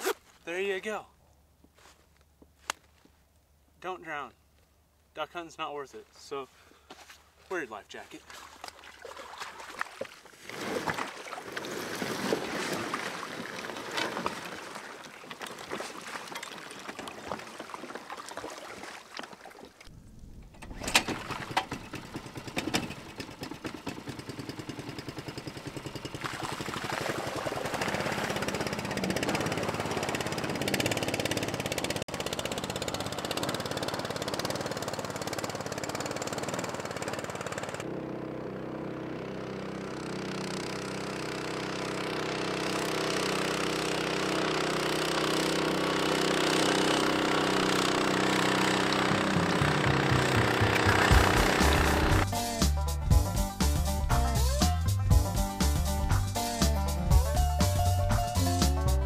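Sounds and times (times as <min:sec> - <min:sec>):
boat motor running: 0:21.2 - 0:52.4.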